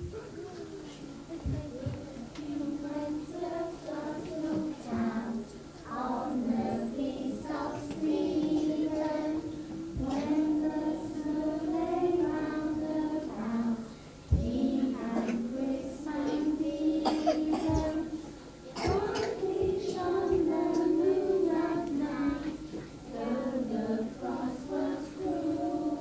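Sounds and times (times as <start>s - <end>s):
children singing together: 0.0s - 26.0s
thump: 14.3s - 14.5s.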